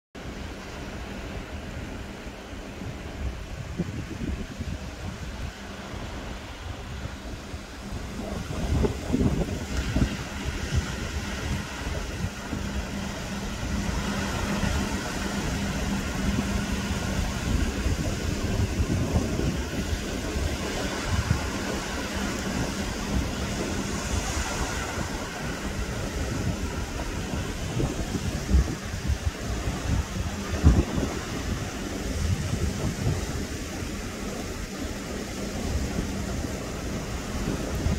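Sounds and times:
small waves washing onto beach: 0.2s - 37.9s
wind rumbling on microphone: 0.2s - 37.9s.

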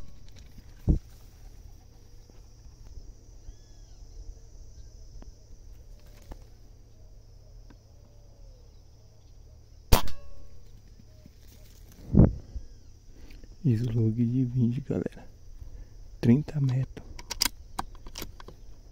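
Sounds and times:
faint bird calls: 0.0s - 13.6s
air rifle shot: 9.9s - 10.5s.

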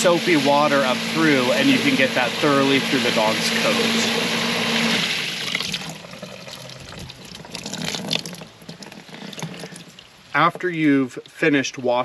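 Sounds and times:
hose spraying into water: 0.0s - 10.1s
pump humming: 0.0s - 10.3s
water dripping and trickling: 5.4s - 10.4s.

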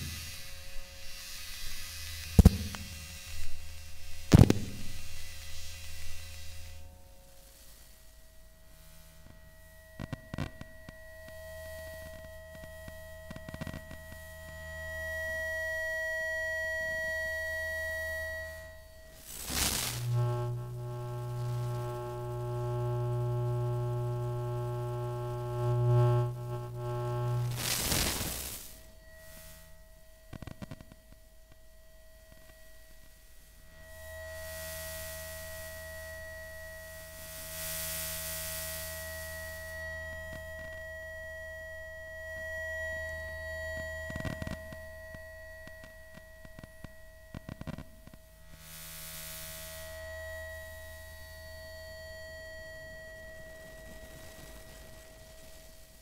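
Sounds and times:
low hum: 0.0s - 7.2s, 14.0s - 30.2s
electronic buzz with low hum: 0.0s - 56.0s
crackling clicks: 12.1s - 14.2s, 19.3s - 28.8s, 45.6s - 48.2s.

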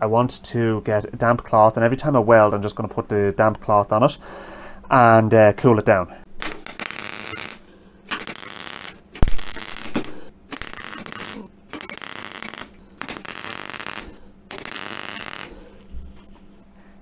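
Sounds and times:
welding arc crackling: 6.4s - 16.5s.

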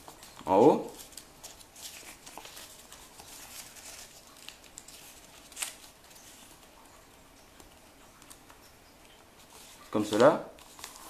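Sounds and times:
sharp paper crackle: 0.0s - 6.9s, 9.4s - 11.0s
paper rustling and crinkling: 0.0s - 11.0s.

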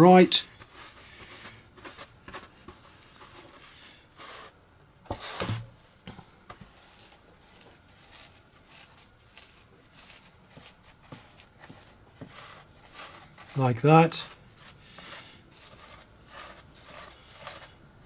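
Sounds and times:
paintbrush dabbing on cloth: 6.8s - 17.8s.

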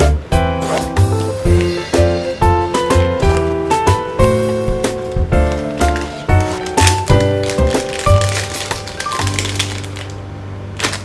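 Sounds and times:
light instrumental music: 0.0s - 10.9s.

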